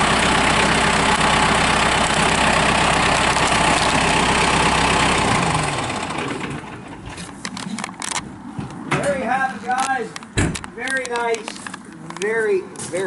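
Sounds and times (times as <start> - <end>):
tractor diesel engine idling: 0.0 - 7.2.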